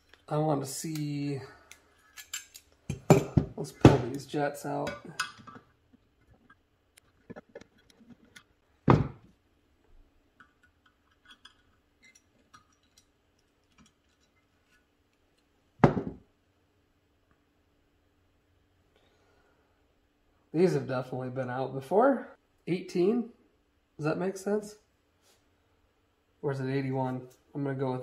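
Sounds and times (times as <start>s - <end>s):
screwdriver clicking and scraping metal: 1.7s - 3.1s
tool set down on bench: 2.9s - 4.1s, 15.8s - 16.2s.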